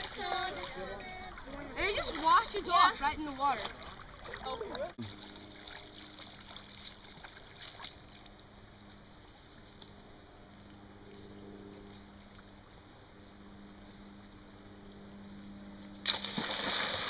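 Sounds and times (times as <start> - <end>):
faint river water: 0.0 - 17.0
low hum: 0.0 - 17.0
small splashes and knocks: 3.5 - 9.0, 16.0 - 17.0.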